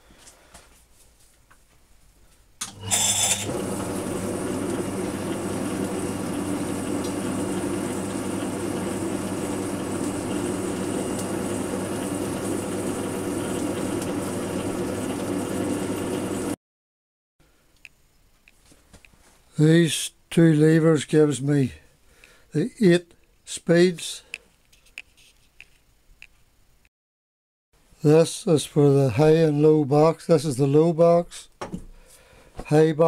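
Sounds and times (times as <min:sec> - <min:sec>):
metal lathe motor humming: 0:02.6 - 0:16.6.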